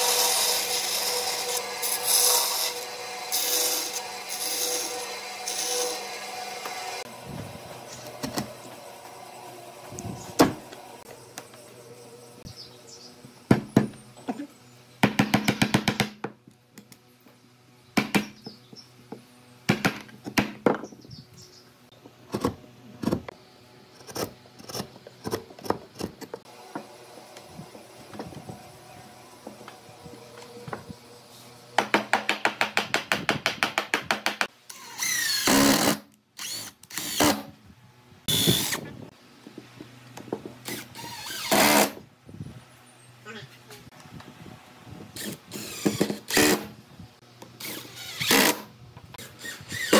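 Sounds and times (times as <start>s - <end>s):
cordless drill running: 34.7s - 37.4s.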